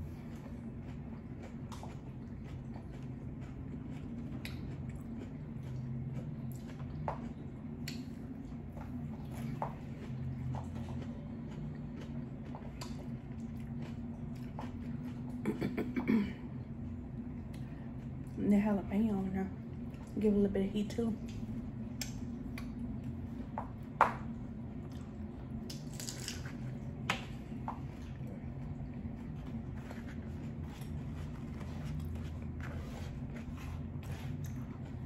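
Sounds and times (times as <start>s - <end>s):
crunchy taco chewing: 0.0s - 15.8s, 24.5s - 35.0s
steady low hum: 0.0s - 35.0s.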